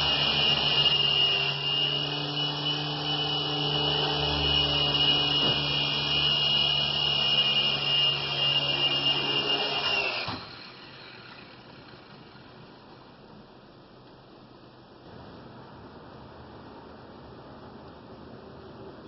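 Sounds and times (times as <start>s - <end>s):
high-pitched motor whine: 0.0s - 13.2s
rotor blades humming: 0.0s - 13.7s.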